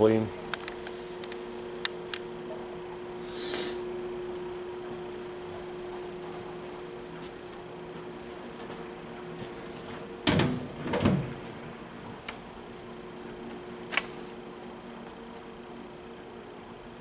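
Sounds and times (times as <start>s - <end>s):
faint steady hum: 0.0s - 17.0s
metal door clanging shut: 10.2s - 11.4s.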